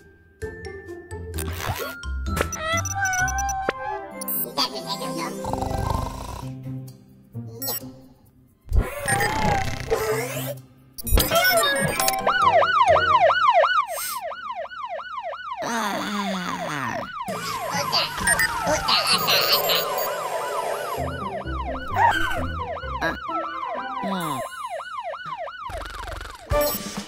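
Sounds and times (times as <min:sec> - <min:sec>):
cartoon siren yelps: 0:02.5 - 0:04.0, 0:11.2 - 0:14.6, 0:15.3 - 0:26.5
jingly music: 0:17.3 - 0:24.6.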